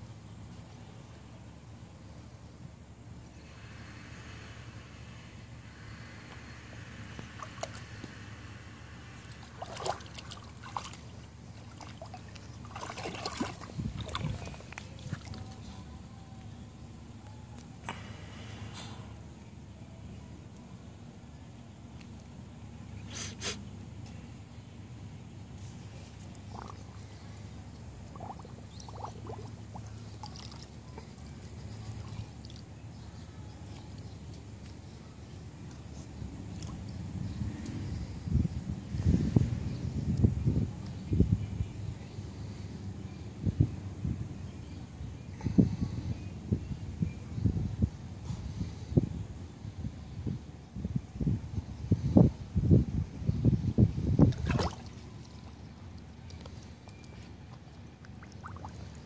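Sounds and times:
steady low hum: 0:00.0 - 0:59.0
dog splashing in water: 0:09.3 - 0:15.5, 0:28.1 - 0:30.7, 0:54.3 - 0:55.0.

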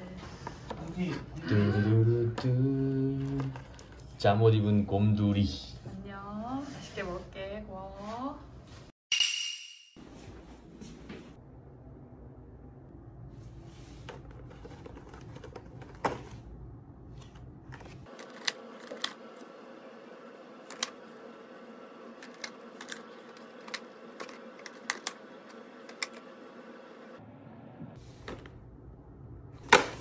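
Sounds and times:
low background hum: 0:10.0 - 0:30.0.

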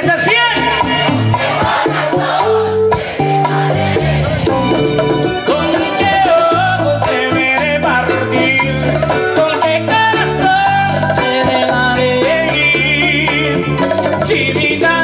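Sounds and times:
man singing: 0:00.0 - 0:01.3, 0:05.4 - 0:15.0
live latin band playing: 0:00.0 - 0:15.0.

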